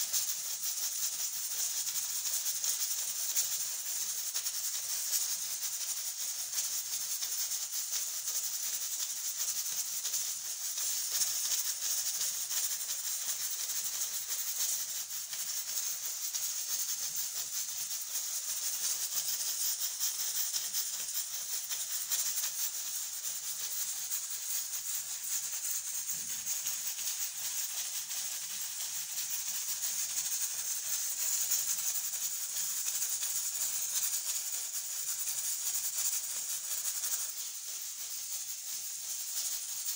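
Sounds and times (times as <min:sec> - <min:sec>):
pressure cooker steam hissing: 0:00.0 - 0:39.9.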